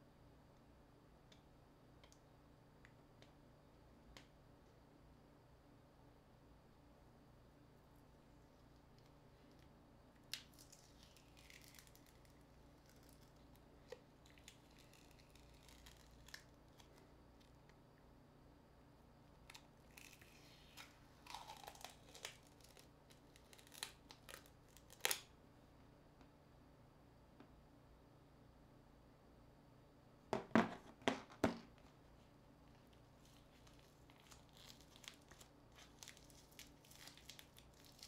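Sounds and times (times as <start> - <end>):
faint room hum: 0.0 - 38.0.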